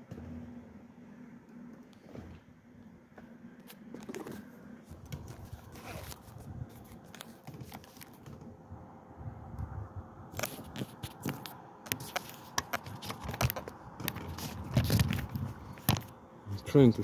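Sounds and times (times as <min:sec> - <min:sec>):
clicks and rustles of handling: 0:03.6 - 0:08.5, 0:10.3 - 0:16.2
wind rumble on microphone: 0:04.9 - 0:16.8.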